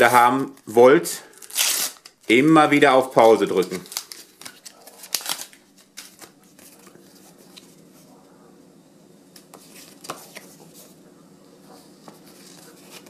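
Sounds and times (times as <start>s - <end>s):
wrapper crinkling: 3.2s - 7.0s.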